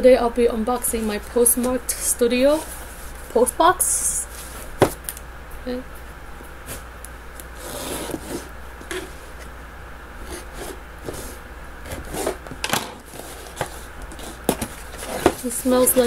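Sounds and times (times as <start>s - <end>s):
cardboard box scraping: 7.6s - 9.4s, 10.2s - 12.4s, 13.1s - 16.0s.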